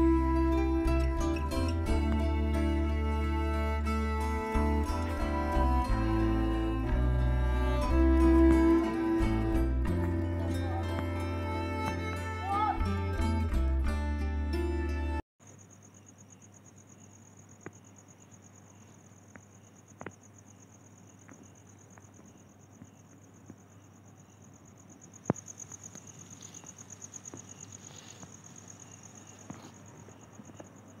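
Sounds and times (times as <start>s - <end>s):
music: 0.0s - 15.2s
cricket trilling: 2.1s - 6.8s, 15.4s - 31.0s.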